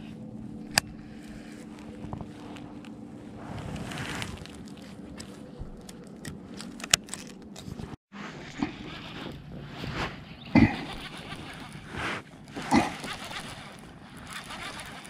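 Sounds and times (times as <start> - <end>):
hands rustling against fishing reel: 0.0 - 15.0
sharp reel clicks: 10.5 - 15.0.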